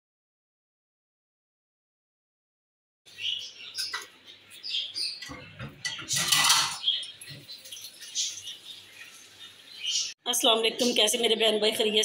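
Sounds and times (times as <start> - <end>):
small birds chirping: 3.1 - 11.9.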